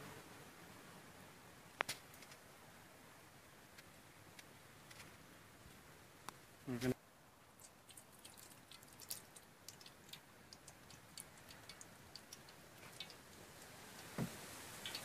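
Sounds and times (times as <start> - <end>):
twig fire crackling: 7.4 - 15.0
soft thump: 14.2 - 14.4.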